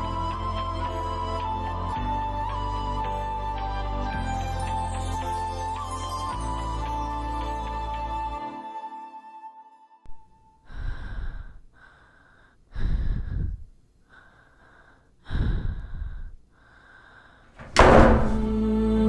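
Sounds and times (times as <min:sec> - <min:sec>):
woman breathing heavily while crying: 0:10.6 - 0:17.6
background music with loud hit: 0:17.8 - 0:18.5.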